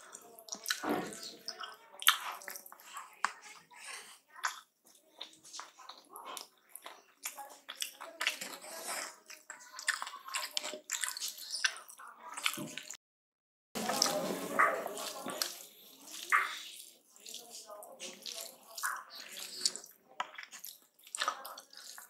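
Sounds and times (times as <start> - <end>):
fingers squishing food: 0.0 - 13.0, 13.8 - 22.0
person chewing: 0.0 - 13.0, 13.8 - 22.0.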